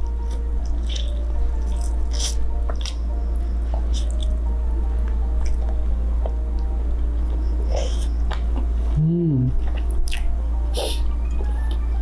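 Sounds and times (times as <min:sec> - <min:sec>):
wet chewing: 0:00.2 - 0:03.0, 0:03.7 - 0:04.4
man humming: 0:08.9 - 0:09.6.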